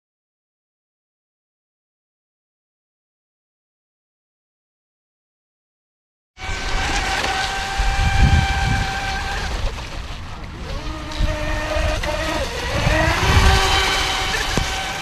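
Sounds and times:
electric motor whining: 0:06.4 - 0:15.0.

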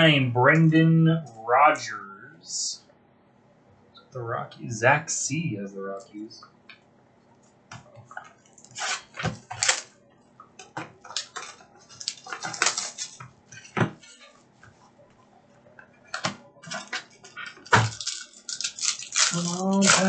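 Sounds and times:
cardboard scraping and rustling: 0:08.6 - 0:09.8.

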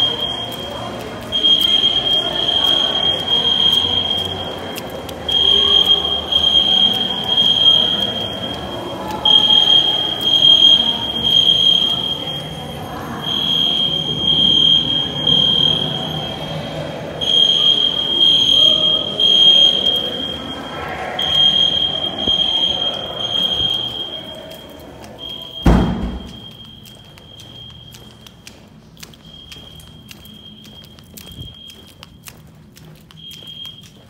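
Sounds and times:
fire alarm horns pulsing: 0:00.0 - 0:34.0
loud thump: 0:25.6 - 0:26.4.

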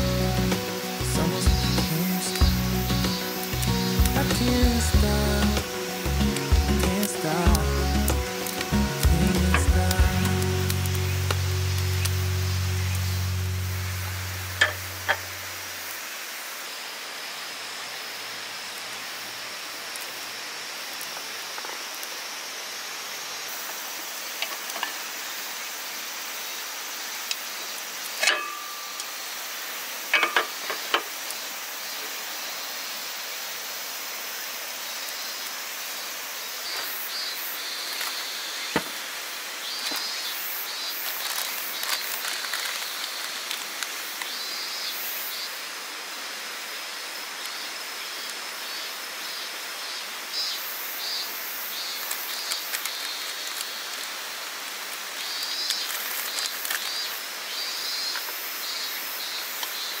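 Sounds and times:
high chirping: 0:00.0 - 0:15.4
water rushing: 0:00.0 - 0:57.5.

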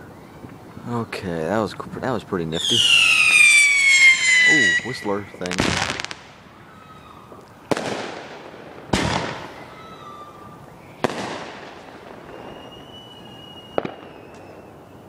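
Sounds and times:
fireworks bangs echoing: 0:02.6 - 0:15.0
whistling firework: 0:02.6 - 0:15.0.

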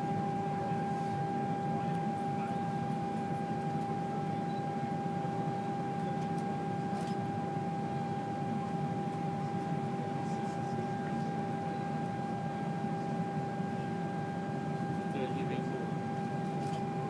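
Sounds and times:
airliner cabin hum: 0:00.0 - 0:17.0.

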